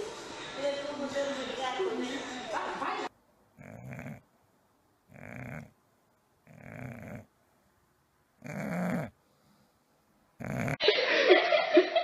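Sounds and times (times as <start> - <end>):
dog snoring: 3.6 - 4.2, 5.1 - 5.8, 6.4 - 7.3, 8.4 - 9.5, 10.4 - 10.8.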